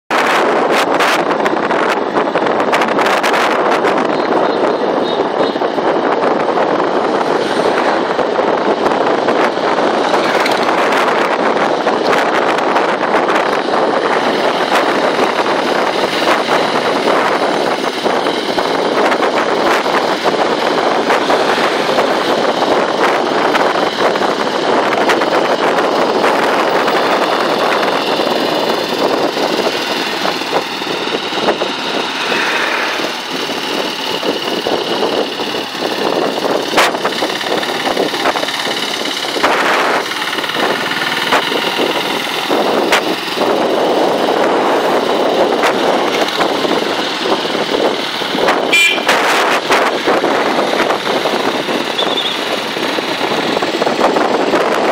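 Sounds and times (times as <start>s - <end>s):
motorcycle engine: 0.1s - 54.9s
wind on microphone: 0.1s - 54.9s.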